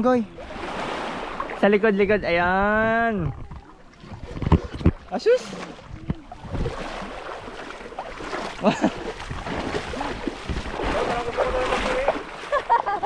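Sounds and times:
sea water rushing and sloshing: 0:00.0 - 0:13.0.

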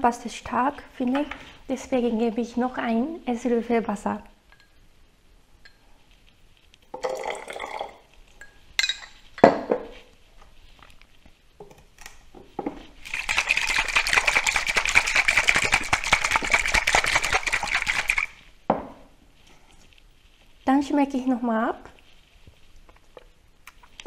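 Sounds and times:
water pouring into shaker: 0:13.0 - 0:18.4
container shaking: 0:13.0 - 0:18.5.

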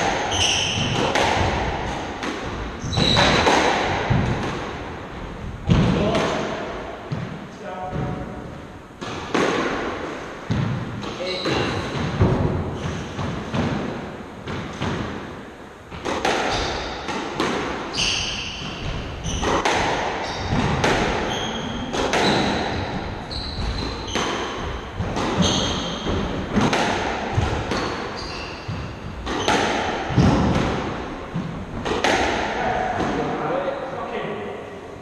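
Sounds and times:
ball smacking walls: 0:00.0 - 0:04.9, 0:09.0 - 0:15.3, 0:15.9 - 0:33.3
squash ball hitting rackets: 0:00.0 - 0:05.0, 0:05.6 - 0:33.4
shoe squeaks on wooden floor: 0:00.3 - 0:01.0, 0:02.8 - 0:03.4, 0:17.9 - 0:19.6, 0:20.2 - 0:20.6, 0:21.2 - 0:24.5, 0:25.4 - 0:26.1, 0:27.8 - 0:29.6.

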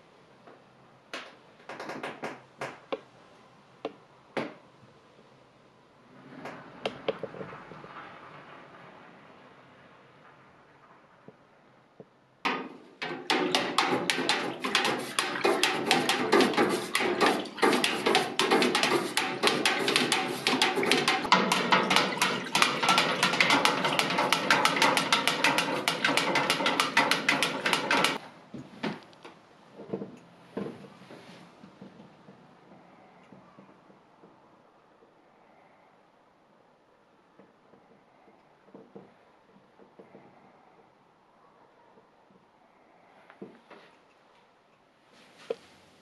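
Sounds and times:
wooden stick knocking metal vat: 0:12.5 - 0:28.2.

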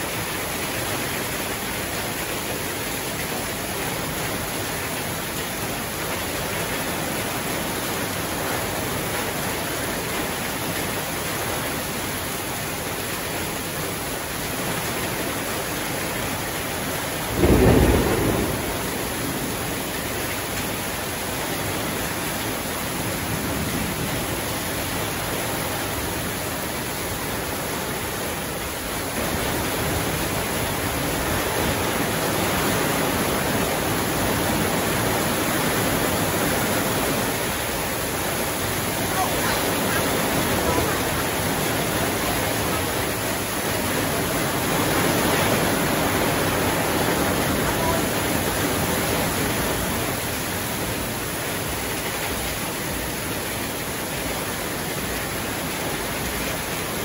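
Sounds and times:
heavy rain pouring: 0:00.0 - 0:57.0
loud thunder clap: 0:17.3 - 0:19.5.

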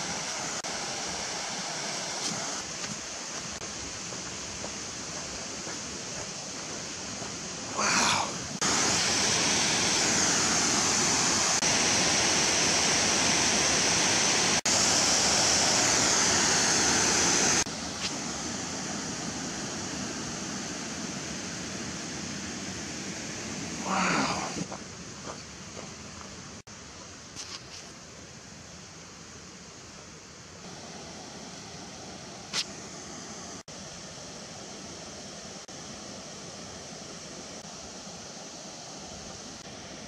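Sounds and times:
waterfall rushing: 0:00.0 - 0:24.7.

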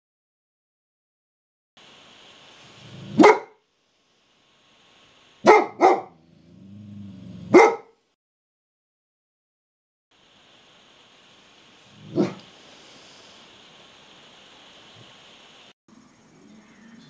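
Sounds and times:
dog growling: 0:02.8 - 0:03.2, 0:06.0 - 0:07.8, 0:11.9 - 0:12.5
dog barking: 0:03.0 - 0:03.6, 0:05.4 - 0:06.2, 0:07.4 - 0:08.0, 0:12.0 - 0:12.5.

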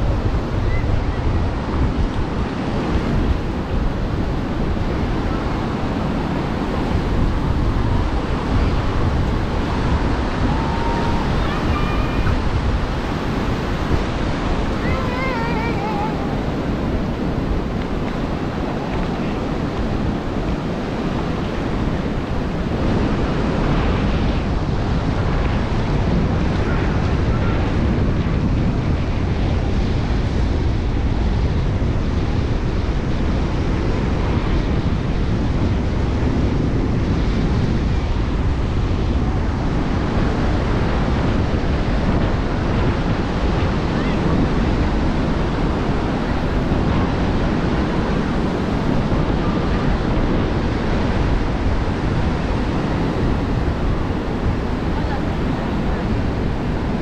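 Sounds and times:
ocean surf washing onto beach: 0:00.0 - 0:57.0
wind rumbling on microphone: 0:00.0 - 0:57.0
people talking in background: 0:54.7 - 0:56.9.

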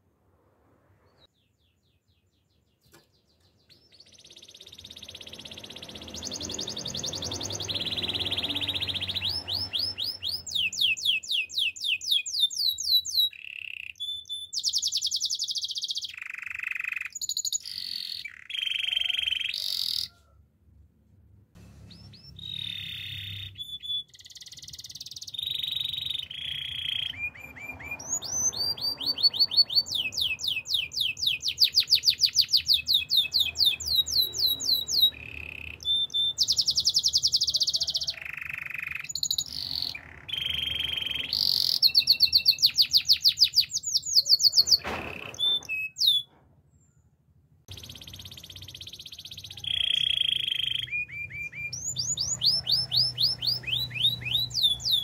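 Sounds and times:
canary singing trills: 0:01.1 - 0:20.2, 0:21.7 - 0:46.3, 0:47.7 - 0:55.0.

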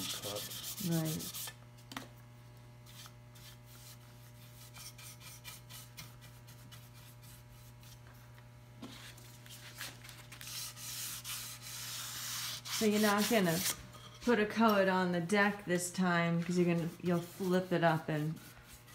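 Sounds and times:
brush strokes rubbing on wood: 0:00.0 - 0:01.5, 0:16.5 - 0:18.9.

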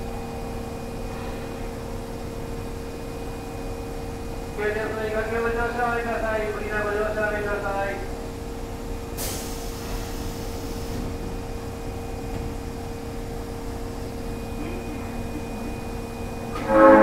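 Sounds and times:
subway train humming: 0:00.0 - 0:17.0
air hissing: 0:09.2 - 0:11.2.

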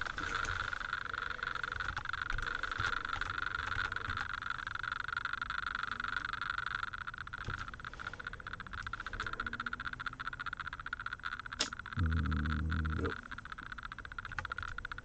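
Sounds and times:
steady high-pitched drone: 0:12.0 - 0:13.4
computer keyboard clicks: 0:13.0 - 0:15.0.

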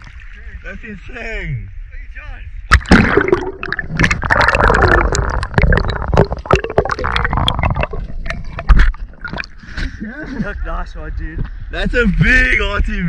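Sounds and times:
muffled water sloshing and bubbling: 0:00.0 - 0:00.6, 0:02.6 - 0:10.0.

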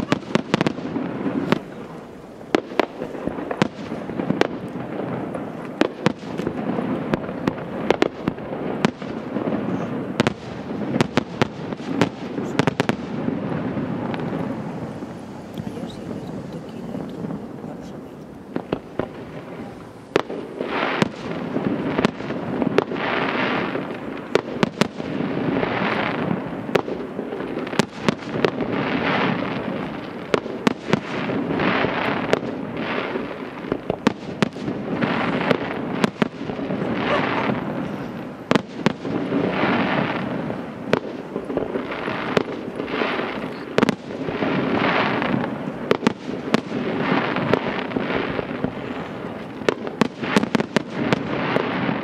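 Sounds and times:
fireworks bursting with sharp bangs: 0:00.0 - 0:52.0
waves of noise: 0:12.1 - 0:22.0.

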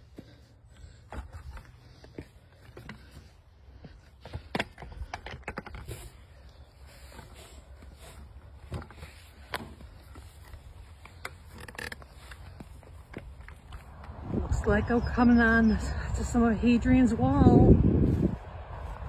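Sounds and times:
footsteps on wooden ladder: 0:00.0 - 0:14.1
steady low rumble: 0:12.8 - 0:19.0.

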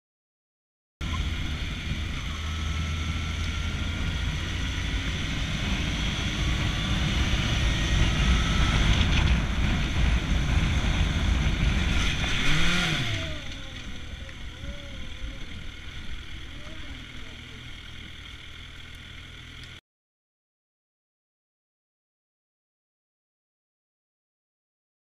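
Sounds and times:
motorcycle engine rumble: 0:01.0 - 0:19.8.

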